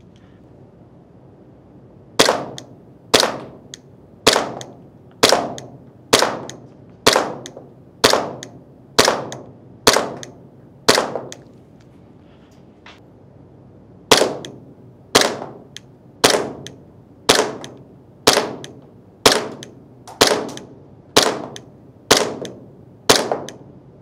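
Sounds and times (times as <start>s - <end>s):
airsoft pistol shots: 2.2s - 11.4s, 14.1s - 14.6s, 15.2s - 15.6s, 17.3s - 23.6s.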